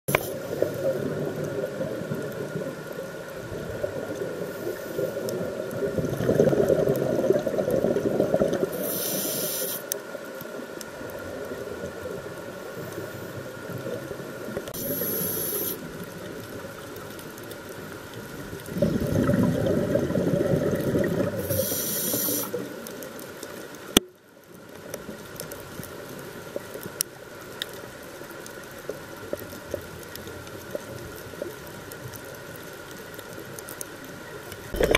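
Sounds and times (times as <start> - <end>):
faint steady hum: 0.1 - 34.9
exhaled bubbles rushing: 5.4 - 8.8, 18.6 - 21.7, 34.7 - 34.9
regulator inhalation hiss: 8.7 - 10.0, 14.8 - 15.9, 21.4 - 22.7.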